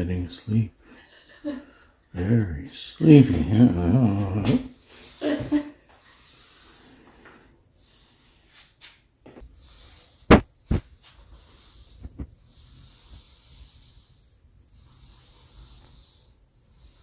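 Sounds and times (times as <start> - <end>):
paint roller hissing: 1.5 - 17.0.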